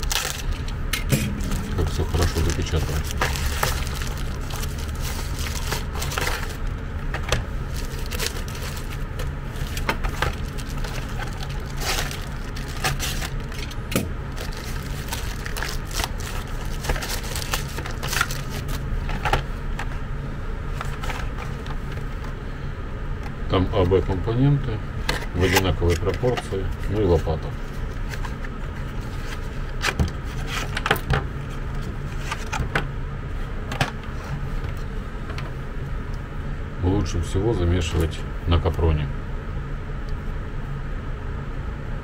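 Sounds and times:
plastic bag crinkling: 0.0s - 0.7s, 1.3s - 19.3s
steady low hum: 0.0s - 42.0s.

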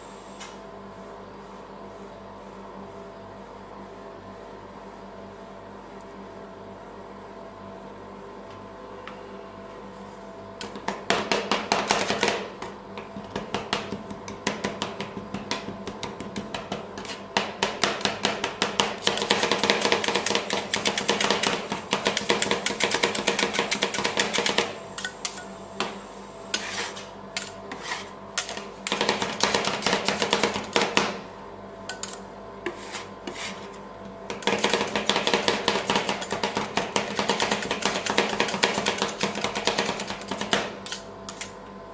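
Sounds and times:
metal spatulas chopping on steel: 10.6s - 12.5s, 13.4s - 25.4s, 26.6s - 31.2s, 31.9s - 33.4s, 34.3s - 41.6s.

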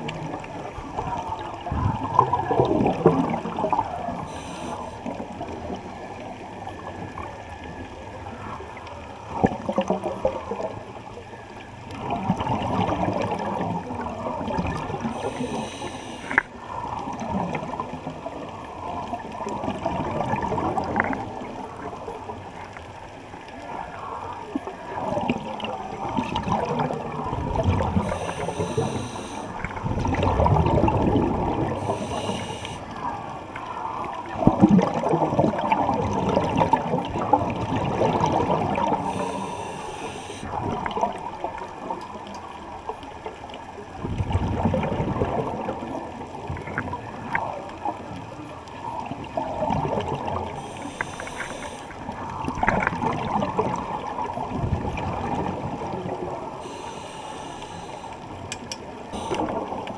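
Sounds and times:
muffled underwater water sloshing: 0.0s - 59.9s
bubbles hissing: 1.9s - 5.8s, 12.0s - 18.0s, 25.1s - 33.2s, 34.5s - 41.1s, 49.5s - 59.9s.

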